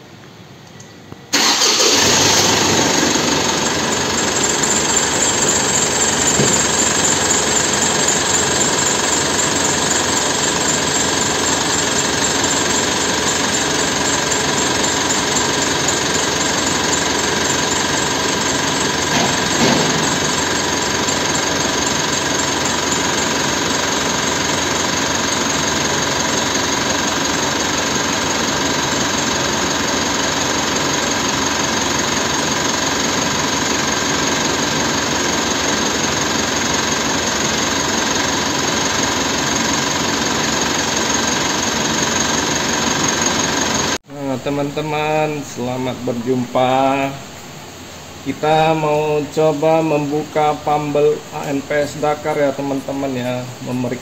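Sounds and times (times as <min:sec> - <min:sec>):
diesel engine idling with knock: 0:01.4 - 0:44.0
loud bump: 0:06.0 - 0:07.6, 0:19.1 - 0:20.7.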